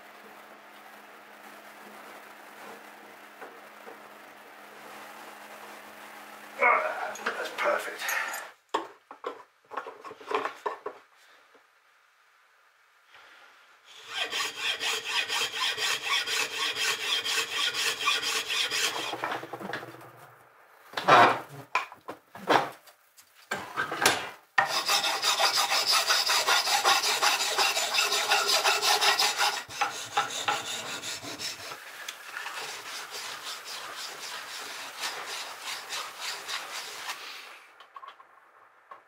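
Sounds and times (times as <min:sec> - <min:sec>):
hand file rasping on metal: 0:13.9 - 0:19.3, 0:24.6 - 0:31.8, 0:32.4 - 0:37.2.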